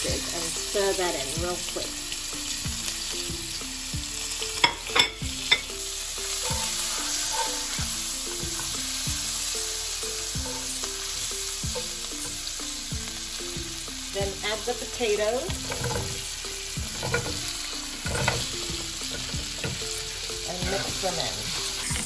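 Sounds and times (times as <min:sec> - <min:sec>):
spices sizzling in hot oil: 0:00.0 - 0:22.0
spatula knocking on pan: 0:15.5 - 0:16.2, 0:16.8 - 0:20.0.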